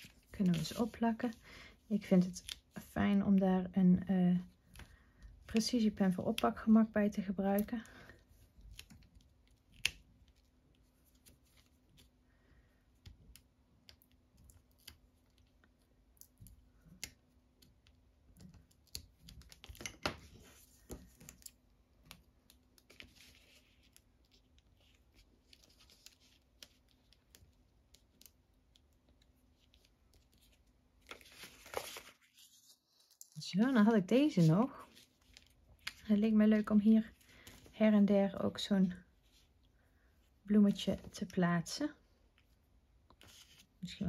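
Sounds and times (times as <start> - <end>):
small paper clicks and taps: 13.0 - 24.0.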